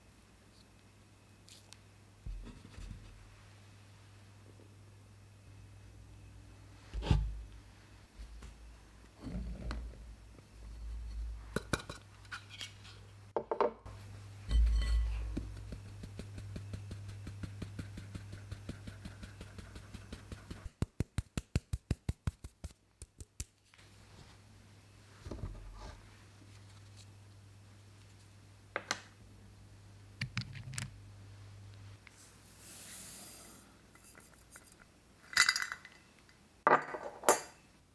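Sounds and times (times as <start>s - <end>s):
low steady hum: 0.0s - 20.7s
metal clinking on glass: 14.5s - 15.3s
flour sifting through sieve: 14.5s - 20.7s, 32.2s - 34.6s.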